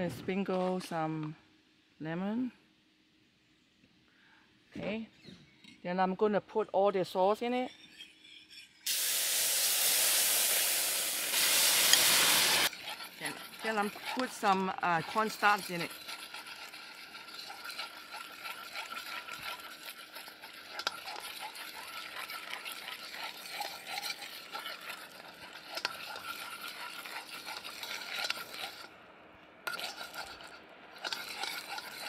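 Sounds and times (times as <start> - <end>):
metal spoon scraping a wok: 7.4 - 29.0, 29.6 - 32.0.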